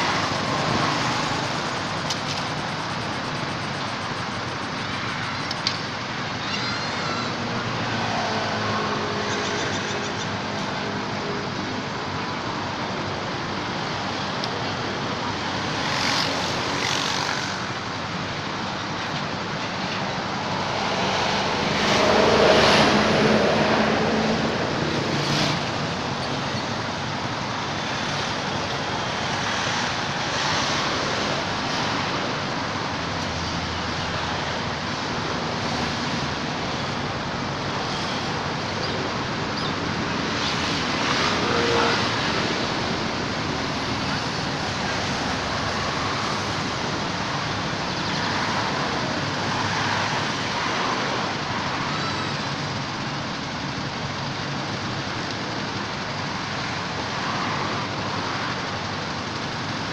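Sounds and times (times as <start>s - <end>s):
road traffic noise: 0.0s - 59.9s
vehicle passing: 20.8s - 26.2s.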